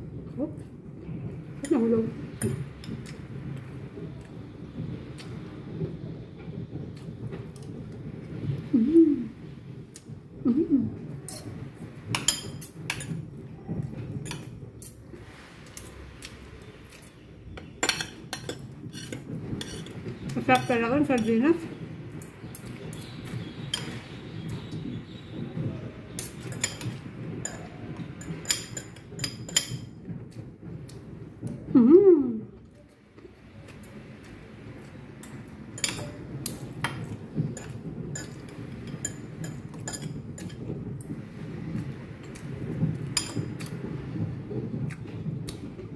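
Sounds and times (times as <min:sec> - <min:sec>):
spoon and fork clinking on dishes: 0:17.8 - 0:20.0, 0:26.2 - 0:29.9, 0:35.2 - 0:40.6.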